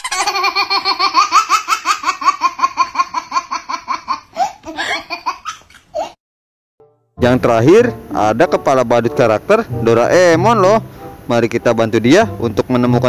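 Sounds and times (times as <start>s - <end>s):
young child laughing: 0.0s - 6.2s.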